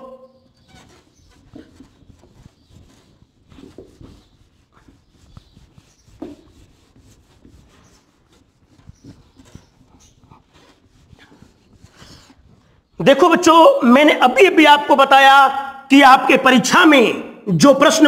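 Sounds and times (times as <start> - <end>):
duster rubbing whiteboard: 0.0 - 13.0.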